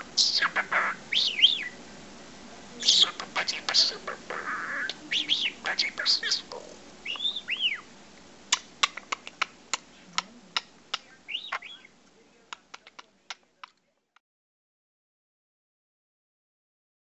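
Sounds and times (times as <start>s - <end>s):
budgerigar chirps: 0.0s - 1.8s, 2.8s - 7.9s, 8.5s - 9.9s, 10.5s - 12.0s
budgerigar clicks: 2.9s - 7.8s, 8.5s - 11.9s, 12.5s - 13.9s.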